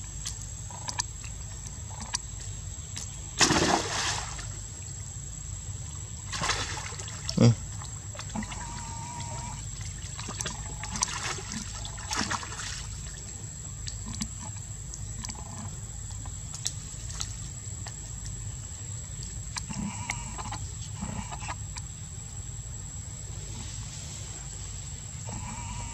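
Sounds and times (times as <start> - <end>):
water splashing and trickling: 3.4 - 5.0, 5.7 - 19.7.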